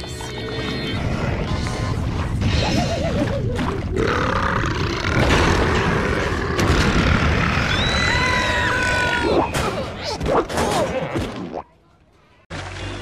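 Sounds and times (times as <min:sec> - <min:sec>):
distorted cartoon burp: 0:03.9 - 0:07.5.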